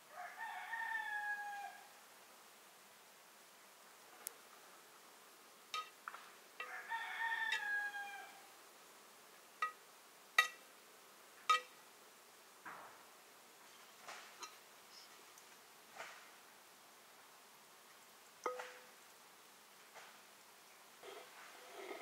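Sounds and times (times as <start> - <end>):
rooster crowing: 0.1 - 2.0, 6.6 - 8.5
metal ladle clinking on pot: 5.8 - 6.0, 9.6 - 9.8, 10.4 - 10.6, 11.5 - 11.8, 18.4 - 18.8.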